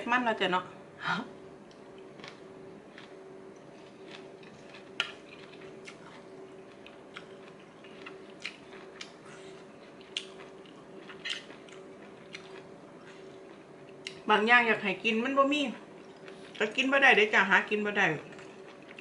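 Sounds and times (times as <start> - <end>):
faint steady hum: 0.0 - 19.0
person chewing: 1.7 - 14.2, 15.9 - 16.7, 18.3 - 19.0.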